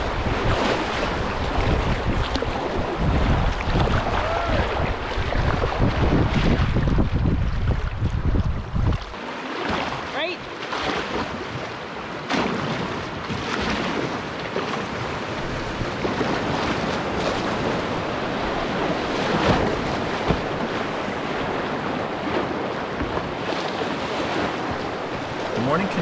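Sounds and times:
wind noise on microphone: 0:00.0 - 0:09.2, 0:12.8 - 0:26.0
loud water splashes: 0:00.0 - 0:26.0
river rapids rushing: 0:24.4 - 0:26.0.

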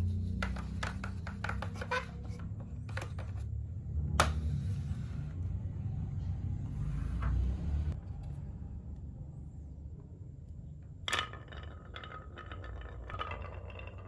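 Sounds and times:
plastic toy rubbing and knocking: 0:00.0 - 0:03.6
low steady rumble: 0:00.0 - 0:14.0.

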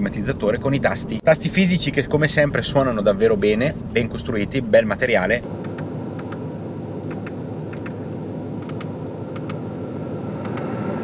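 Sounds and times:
car cabin hum: 0:05.4 - 0:11.0
dashboard buttons clicking: 0:05.6 - 0:06.4, 0:07.1 - 0:08.0, 0:08.6 - 0:09.6, 0:10.4 - 0:10.7.

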